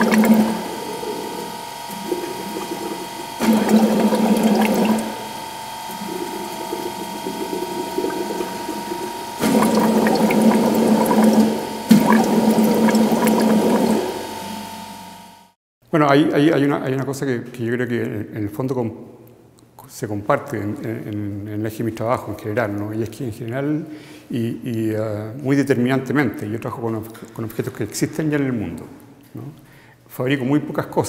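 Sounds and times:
water bubbling and gurgling in jars: 0.0s - 14.5s
steady high hum: 0.0s - 15.6s.

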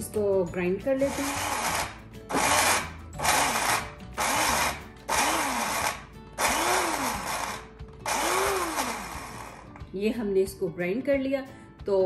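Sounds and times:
electric blade grinder whining: 1.1s - 9.8s.

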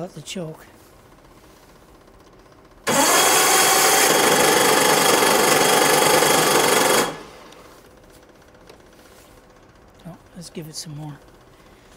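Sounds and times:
snowmobile engine cranking: 2.6s - 7.7s.

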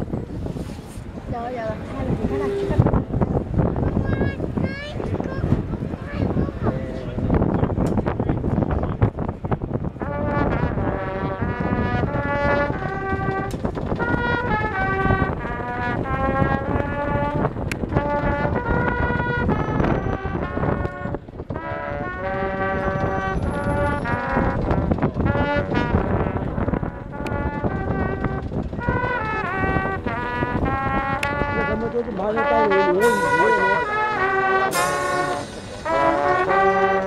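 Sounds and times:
brass section playing anthem: 9.9s - 37.0s.

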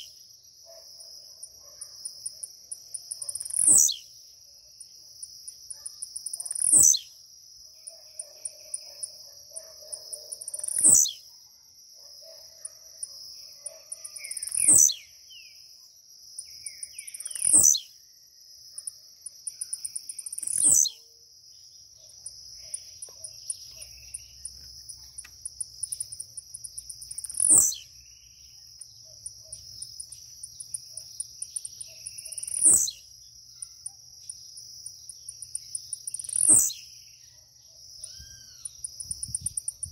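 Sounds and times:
bird buzzy song: 0.0s - 11.3s, 12.2s - 39.9s
high insect drone: 12.1s - 39.9s.

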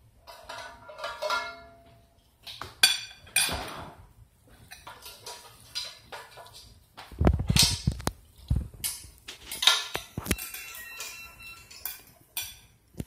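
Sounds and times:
metal spoon clinking on plate: 9.5s - 12.8s.

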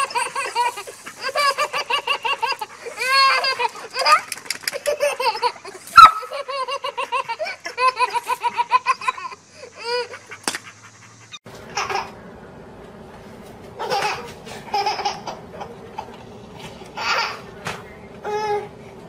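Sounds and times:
toddler belly-laughing: 0.0s - 10.1s, 13.8s - 16.2s, 16.8s - 17.5s.

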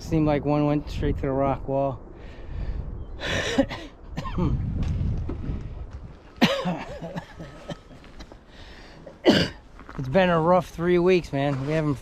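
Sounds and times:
man coughing: 3.3s - 4.6s, 6.4s - 8.4s, 9.2s - 9.6s
man clearing his throat: 3.4s - 4.6s, 6.4s - 8.3s, 9.2s - 9.6s.

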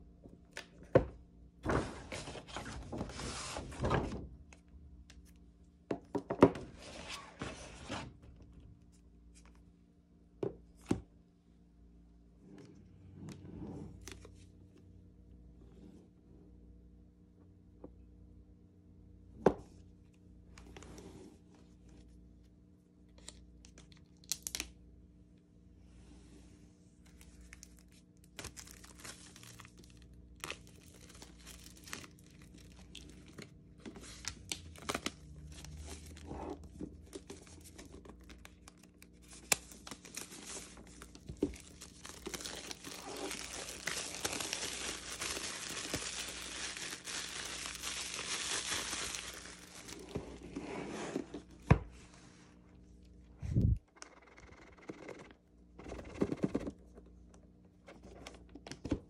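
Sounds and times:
plastic crinkling: 27.1s - 36.2s, 37.0s - 50.2s
plastic wrap tearing: 27.4s - 33.4s, 38.2s - 50.1s.

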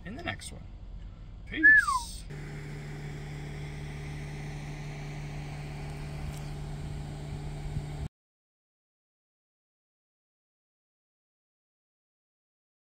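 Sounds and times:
vehicle engine humming: 0.0s - 8.1s.

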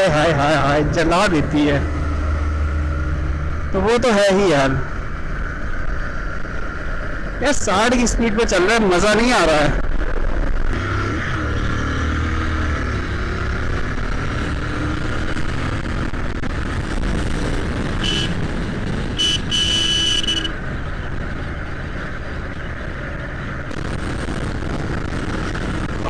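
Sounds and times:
motorcycle engine at speed: 0.0s - 7.4s, 9.8s - 26.0s
wind noise: 12.2s - 26.0s
vehicle horn honking: 18.0s - 18.4s, 19.2s - 20.6s.

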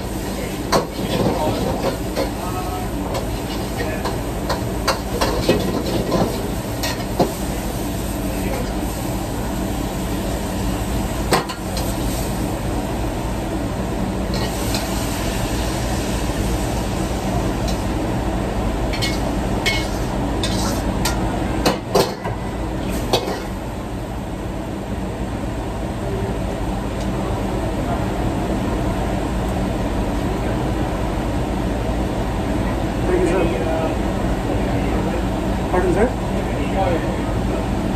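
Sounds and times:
food sizzling: 0.0s - 13.2s, 14.2s - 18.1s, 18.7s - 21.2s
wok range and exhaust hood noise: 0.0s - 37.9s.

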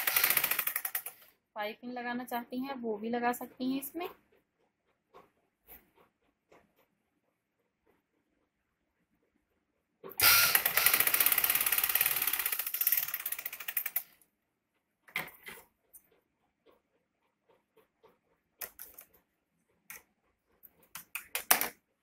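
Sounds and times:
sewing machine stitching: 0.0s - 1.3s, 10.1s - 14.2s.

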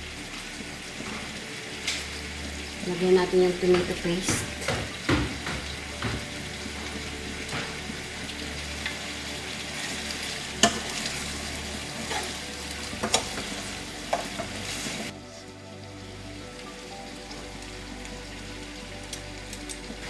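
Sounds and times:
food sizzling in a frying pan: 0.0s - 20.0s
spatula scraping and knocking pan: 3.6s - 8.1s, 9.8s - 11.3s, 11.9s - 12.4s, 13.0s - 15.1s.

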